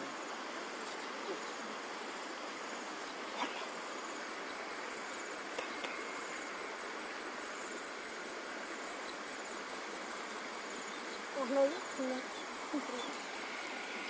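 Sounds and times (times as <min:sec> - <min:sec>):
faint insect chirping: 0:00.0 - 0:14.0
steady outdoor hiss: 0:00.0 - 0:14.0.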